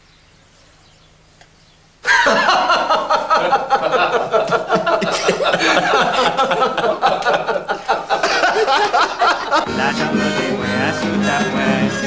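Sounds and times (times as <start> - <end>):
people laughing: 2.0 - 12.0
music: 9.6 - 12.0.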